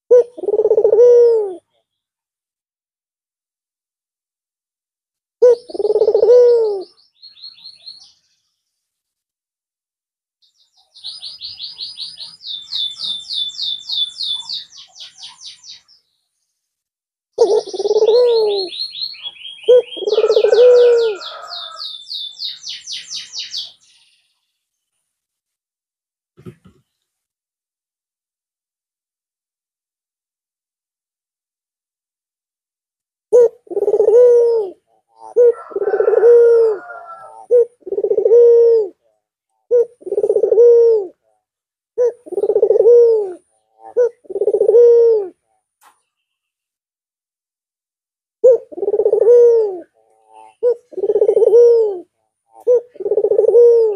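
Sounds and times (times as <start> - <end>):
dove cooing: 0.1 - 1.7, 5.4 - 7.0, 17.4 - 21.8, 33.3 - 41.3, 42.0 - 45.4, 48.4 - 53.9
small bird chirping rapidly: 10.4 - 16.1, 21.2 - 24.3.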